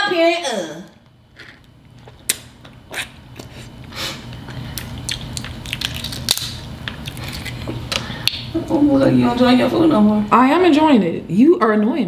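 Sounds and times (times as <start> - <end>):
crab shells cracking: 4.7 - 8.5.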